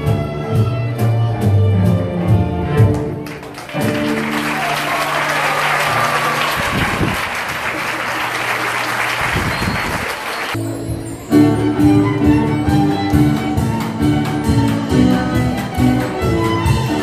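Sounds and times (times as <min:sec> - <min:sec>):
violin-led ensemble playing: 0:00.0 - 0:05.3, 0:11.4 - 0:17.0
large audience applauding: 0:02.9 - 0:10.6.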